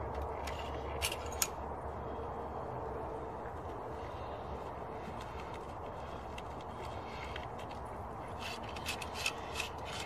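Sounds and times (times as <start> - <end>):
wooden ramrod scraping: 6.4 - 10.0.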